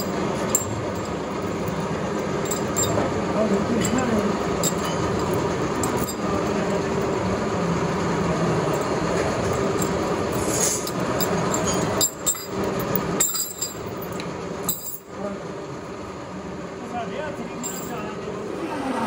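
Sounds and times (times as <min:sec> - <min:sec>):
metal clinking: 0:00.0 - 0:03.1, 0:03.8 - 0:07.2, 0:08.6 - 0:15.1, 0:17.6 - 0:18.1
machinery humming: 0:00.0 - 0:19.0.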